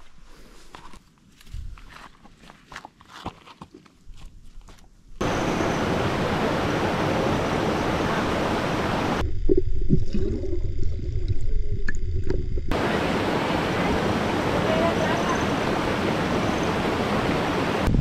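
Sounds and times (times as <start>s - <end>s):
stream rushing over rocks: 5.2s - 9.2s, 12.7s - 17.9s
gurgling bubbles underwater: 9.2s - 12.7s.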